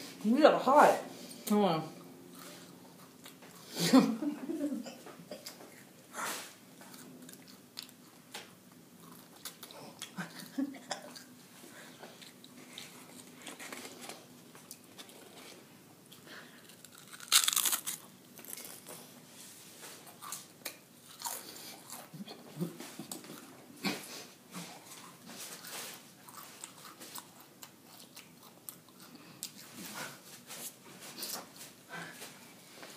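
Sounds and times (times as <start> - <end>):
crunching of chips: 16.6 - 19.0.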